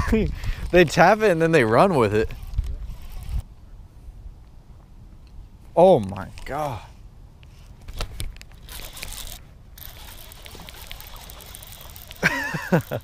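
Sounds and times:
handling clicks and rustling: 0:07.4 - 0:13.0.

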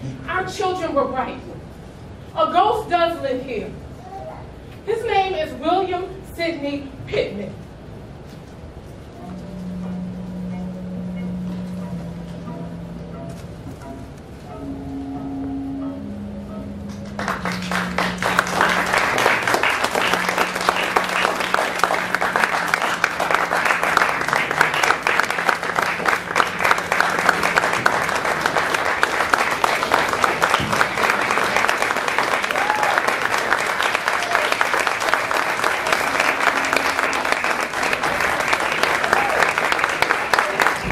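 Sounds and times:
low held tone: 0:09.1 - 0:32.6
audience applauding: 0:16.9 - 0:40.9.

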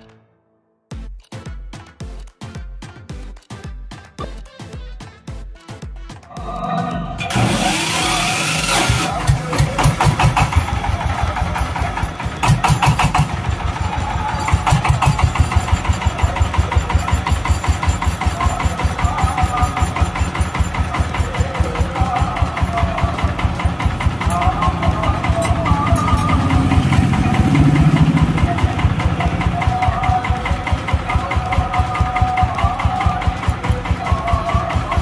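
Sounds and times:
diesel engine starting and idling: 0:06.3 - 0:35.0
loud hiss: 0:07.3 - 0:10.2.

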